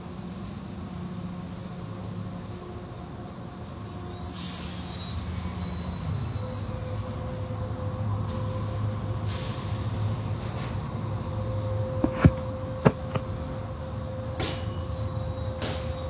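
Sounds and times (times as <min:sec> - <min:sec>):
car wash machinery humming: 0:10.3 - 0:14.4
sharp knocks: 0:12.0 - 0:13.3.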